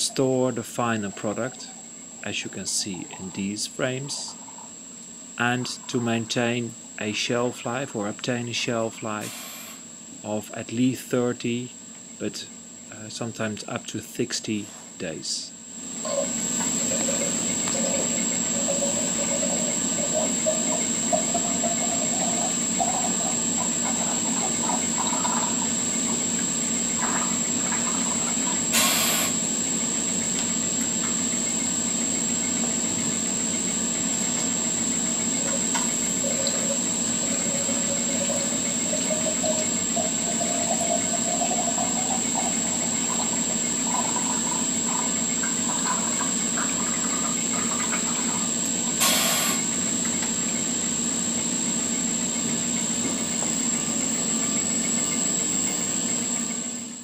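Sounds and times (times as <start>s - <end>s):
machinery hiss and hum: 0.0s - 57.0s
juice running into bottles: 16.1s - 29.8s, 35.2s - 49.7s
short burst of hiss: 28.7s - 29.4s.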